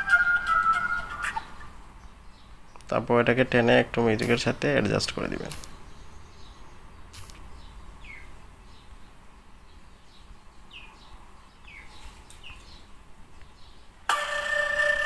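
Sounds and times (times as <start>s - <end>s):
loud steady bird call: 0.0s - 2.7s
small birds chirping: 0.0s - 14.1s.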